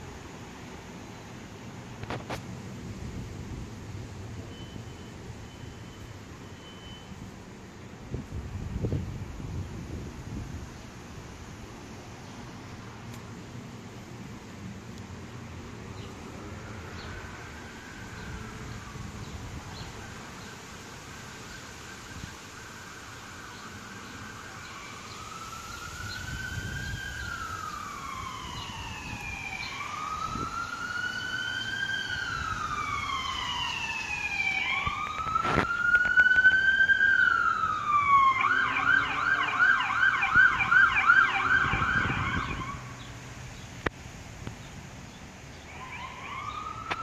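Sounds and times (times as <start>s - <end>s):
siren wailing: 21.5s - 43.0s, 45.7s - 47.0s
siren fast yelp: 24.4s - 42.9s, 45.7s - 47.0s.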